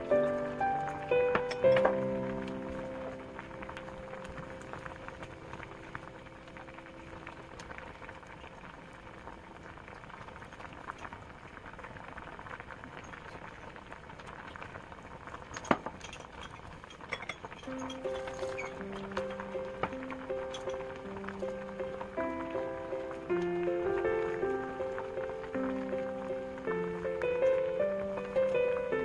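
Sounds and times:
soup boiling and bubbling: 0.0 - 29.0.

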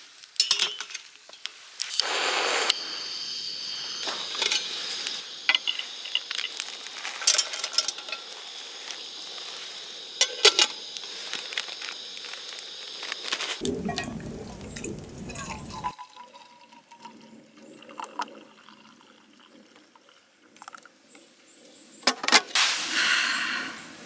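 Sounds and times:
gas burner whoosh and hiss: 1.7 - 13.7, 22.5 - 24.0
clinks and rustles of plastic bag: 5.6 - 8.4.

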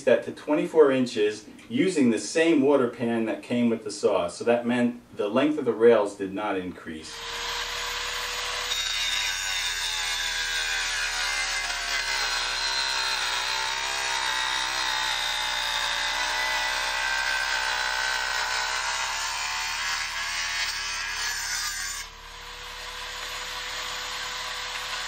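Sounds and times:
wet tile saw cutting tile: 7.1 - 25.0.

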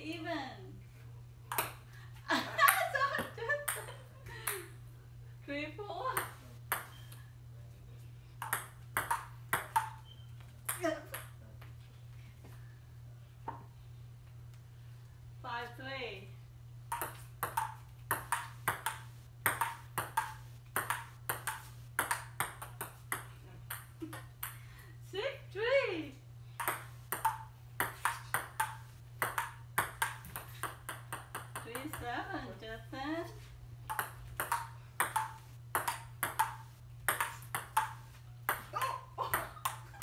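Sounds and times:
steady low hum: 0.0 - 40.0
table tennis ball clicking: 16.9 - 24.6.

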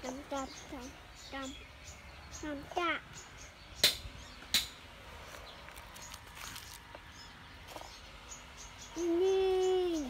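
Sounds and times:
faint rustling of soil: 5.2 - 8.0.

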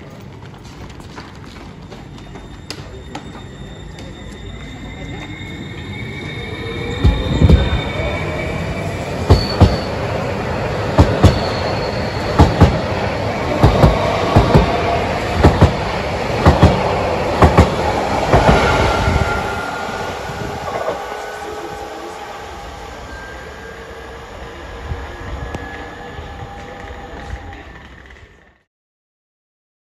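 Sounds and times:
train rumbling: 0.0 - 28.7
faint wheel squeal: 2.2 - 10.1, 11.2 - 12.6.

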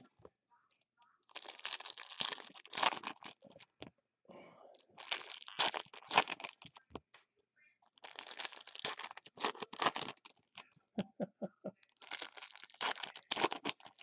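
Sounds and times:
foil wrappers crinkling and tearing: 1.2 - 3.8, 4.8 - 6.9, 7.8 - 10.7, 11.8 - 14.0.

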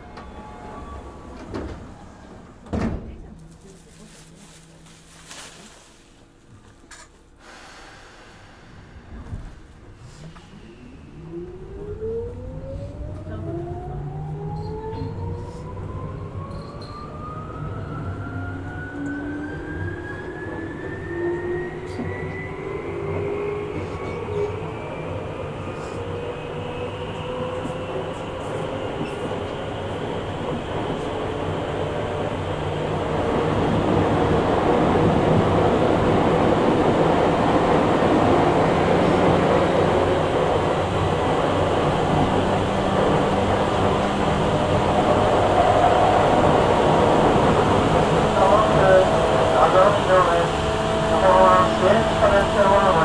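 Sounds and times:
train running gear rumble: 0.0 - 7.2, 25.7 - 53.0.

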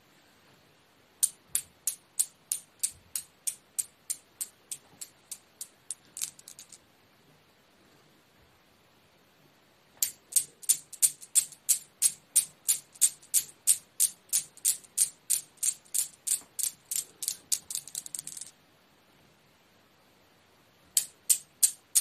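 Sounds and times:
steel balls clacking: 1.2 - 6.8, 10.0 - 18.5, 21.0 - 22.0.

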